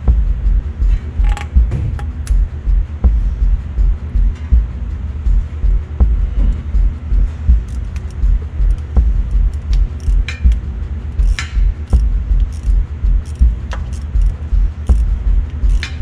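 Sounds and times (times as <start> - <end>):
low rhythmic throb: 0.0 - 16.0
metal parts jingling: 7.6 - 10.5, 11.2 - 16.0
metallic clicks of screwdriver: 7.6 - 10.6, 11.2 - 16.0.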